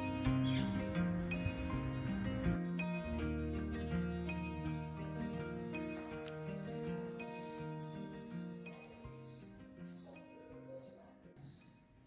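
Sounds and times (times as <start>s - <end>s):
low bass line: 0.0s - 9.3s
melody of held and plucked notes: 0.0s - 10.8s.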